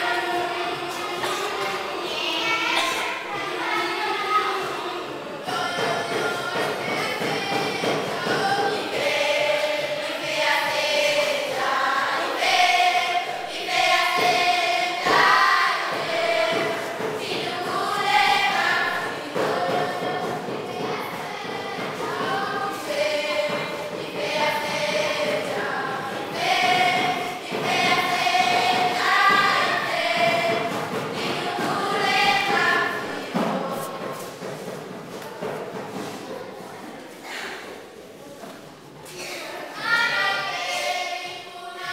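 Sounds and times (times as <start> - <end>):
girls singing unaccompanied: 0.0 - 41.9.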